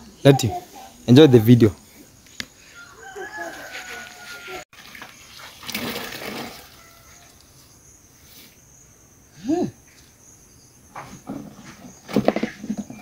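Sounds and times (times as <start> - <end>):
water splashing into plastic basin: 4.7 - 7.0.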